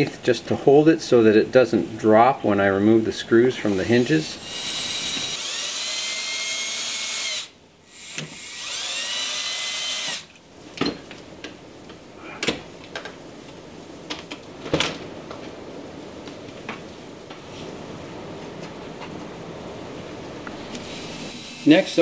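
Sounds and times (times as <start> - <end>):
cordless drill motor whining: 4.4 - 10.3, 20.8 - 21.9.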